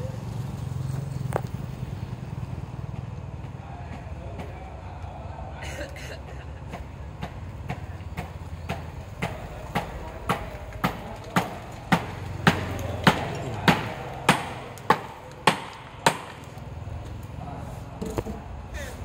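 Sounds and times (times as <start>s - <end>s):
hammer blows: 6.7s - 16.6s.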